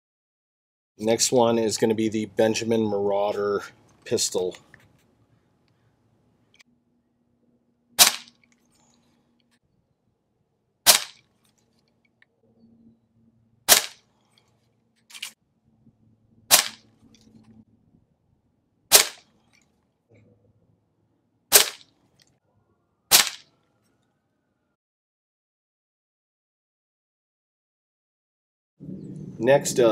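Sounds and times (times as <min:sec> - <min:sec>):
air pistol shots cracking: 0:08.0 - 0:08.4, 0:10.8 - 0:11.2, 0:13.7 - 0:14.1, 0:16.5 - 0:16.9, 0:18.9 - 0:19.3, 0:21.5 - 0:21.9, 0:23.1 - 0:23.5.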